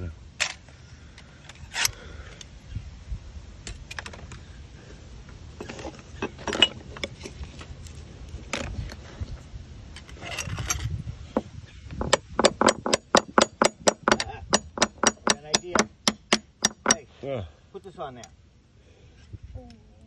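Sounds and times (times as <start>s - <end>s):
metal wedges clinking and scraping: 5.6s - 7.4s, 9.9s - 11.0s.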